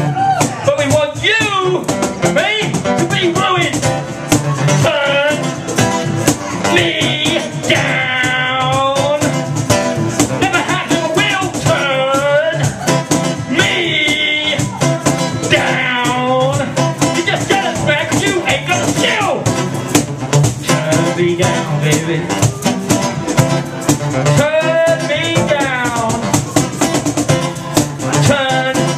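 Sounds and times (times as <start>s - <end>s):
electric guitar: 0.0s - 28.9s
steady clicking beat: 0.3s - 28.9s
man singing into microphone: 4.8s - 5.6s, 6.6s - 9.4s, 10.4s - 12.8s, 13.5s - 14.8s, 15.4s - 19.4s, 20.6s - 22.4s, 24.4s - 26.3s, 28.0s - 28.9s.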